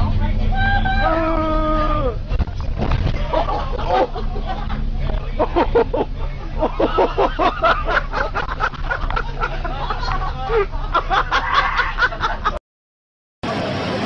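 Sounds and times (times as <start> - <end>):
bus engine drone: 0.0 - 12.6, 13.4 - 14.0
children shouting: 0.6 - 2.2.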